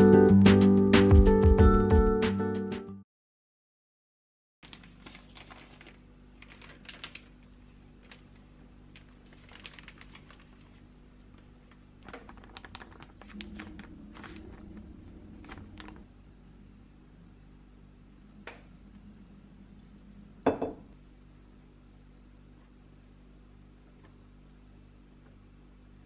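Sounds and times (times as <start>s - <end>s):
plastic packet crinkling: 4.6s - 16.1s
low steady hum: 4.6s - 26.0s.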